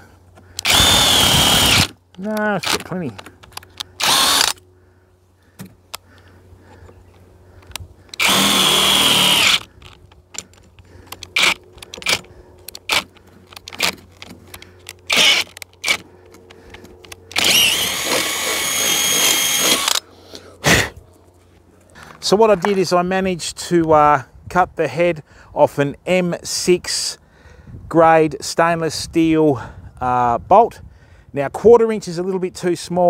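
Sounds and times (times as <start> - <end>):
cordless drill boring through metal: 0.6 - 1.9, 4.0 - 4.6, 8.1 - 9.7, 11.3 - 12.2, 15.1 - 16.0, 17.3 - 20.0.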